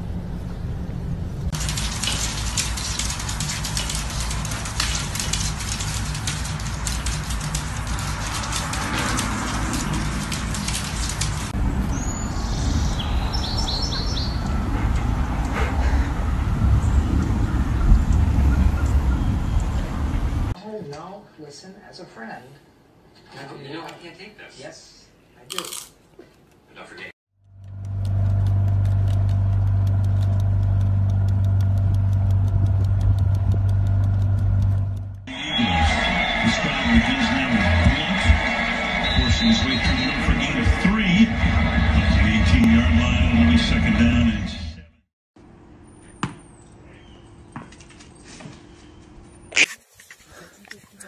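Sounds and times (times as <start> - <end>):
small birds chirping: 11.8 - 14.7
low rumble: 14.3 - 20.6, 27.4 - 35.3
faint regular ticking: 27.4 - 35.3
boat engine humming: 27.4 - 41.0.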